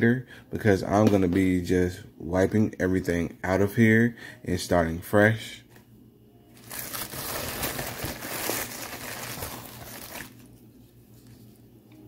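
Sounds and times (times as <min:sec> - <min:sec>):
plastic packaging crinkling: 0:06.6 - 0:10.6.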